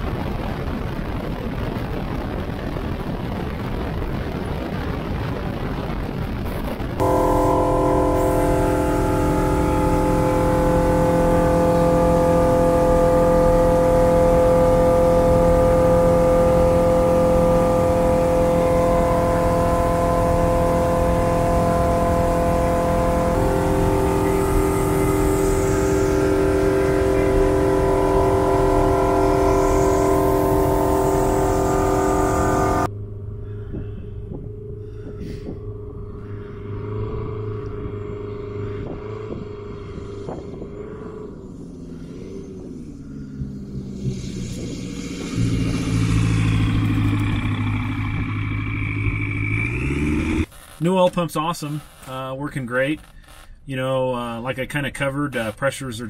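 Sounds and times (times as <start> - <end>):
aircraft engine and propeller droning: 7.0 - 50.5.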